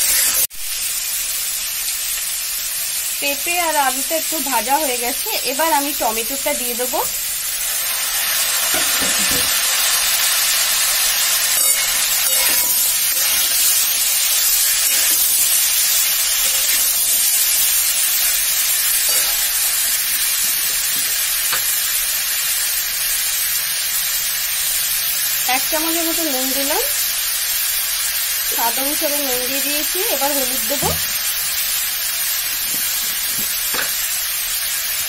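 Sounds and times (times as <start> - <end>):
food sizzling in hot oil: 0.0 - 35.0
metal spatula scraping a pan: 11.5 - 17.4, 19.0 - 19.7.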